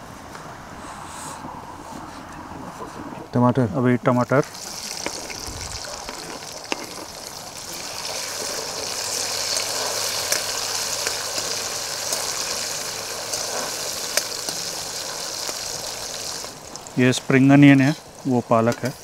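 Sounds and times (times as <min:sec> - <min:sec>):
tomatoes frying in oil: 0:04.4 - 0:19.0.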